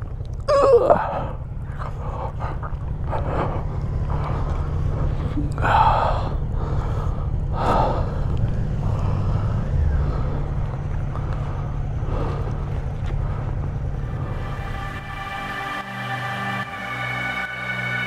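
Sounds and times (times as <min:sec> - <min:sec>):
motorcycles idling and moving off: 0:00.0 - 0:18.0.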